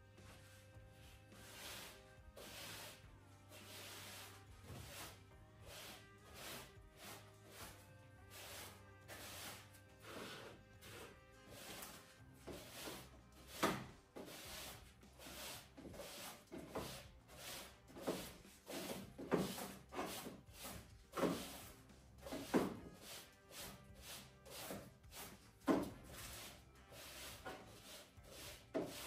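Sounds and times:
broom sweeping wooden floor: 0.1s - 29.0s
plastic dustpan bumping and scraping: 25.6s - 26.0s.

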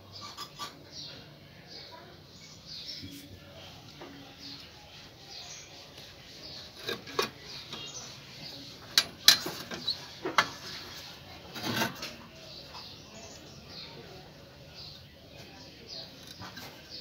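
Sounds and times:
scraping rustle: 5.4s - 12.9s, 15.9s - 17.0s.

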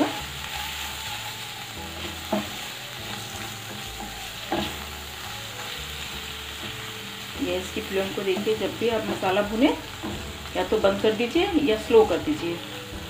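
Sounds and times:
spices sizzling in oil: 0.0s - 13.0s
wooden spatula scraping pan: 0.8s - 4.9s.

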